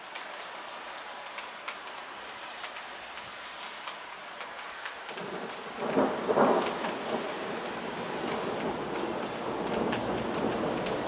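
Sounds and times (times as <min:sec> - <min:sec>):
steady rain: 0:00.0 - 0:11.0
thunder rumbling: 0:05.1 - 0:11.0.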